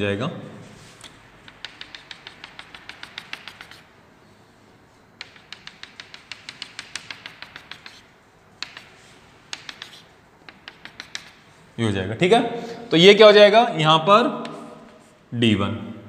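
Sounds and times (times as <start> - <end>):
chalk tapping on chalkboard: 1.0 - 4.0, 5.1 - 11.7, 14.4 - 15.1.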